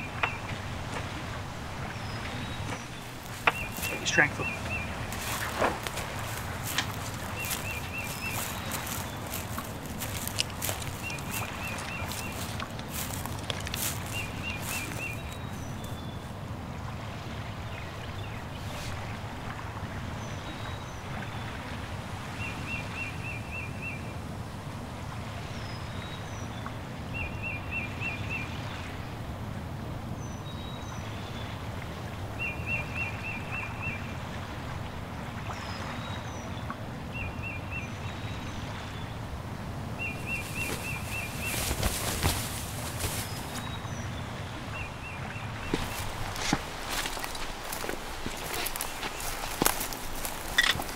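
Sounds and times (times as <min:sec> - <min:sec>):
footsteps and rustling: 0:02.6 - 0:16.1, 0:40.0 - 0:43.8, 0:45.6 - 0:50.9
songbird trilling: 0:02.8 - 0:16.2, 0:40.0 - 0:44.1, 0:47.7 - 0:50.9
faint high bird chirps: 0:50.5 - 0:50.8.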